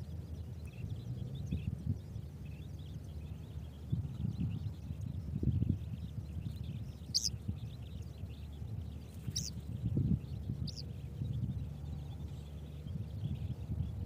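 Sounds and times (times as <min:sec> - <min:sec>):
faint birds or insects chatter: 0:00.0 - 0:14.0
wind rumble on microphone: 0:00.0 - 0:14.0
short high bird chirps: 0:07.1 - 0:07.3.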